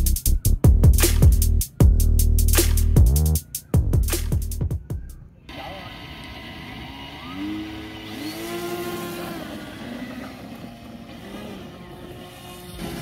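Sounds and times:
electric motor propellers whining: 0:05.5 - 0:13.0.

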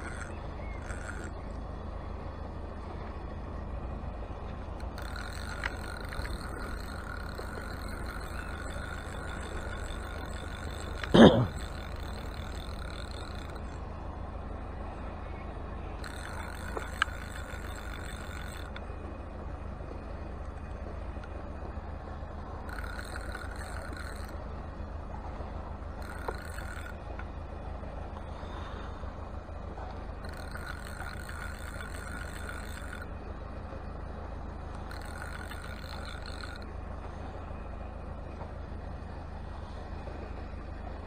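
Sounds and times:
fishing reel whirring: 0:00.0 - 0:01.5, 0:04.8 - 0:14.0, 0:16.0 - 0:19.4, 0:20.0 - 0:24.8, 0:25.4 - 0:27.3, 0:30.1 - 0:34.0, 0:34.6 - 0:36.8
steady low rumble: 0:00.0 - 0:41.0.

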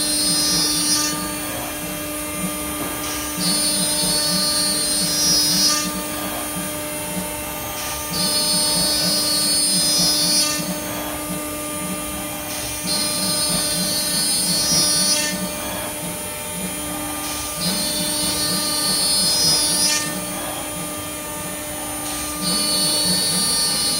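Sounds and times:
router bit cutting board: 0:00.0 - 0:23.9.

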